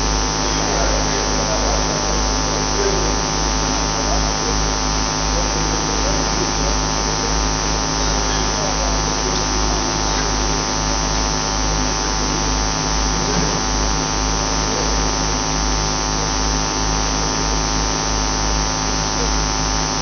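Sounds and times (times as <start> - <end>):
buzzy electrical hum: 0.0 - 20.0.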